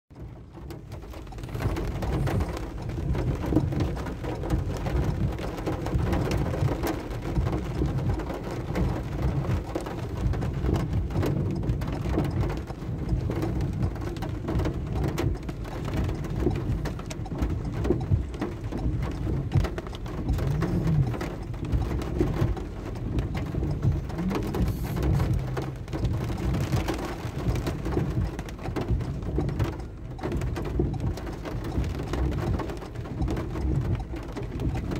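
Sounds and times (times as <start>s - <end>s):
heavy rain on a car roof: 0.1s - 34.9s.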